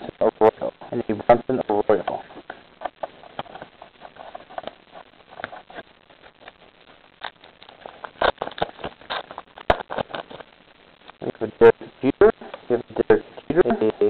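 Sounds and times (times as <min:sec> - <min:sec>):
trading cards clicking and rustling: 0:07.2 - 0:10.5.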